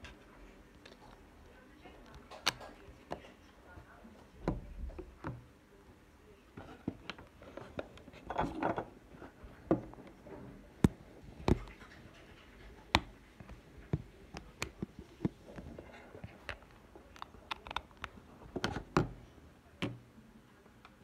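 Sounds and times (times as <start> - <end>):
hands handling mobile phones: 12.8 - 19.2.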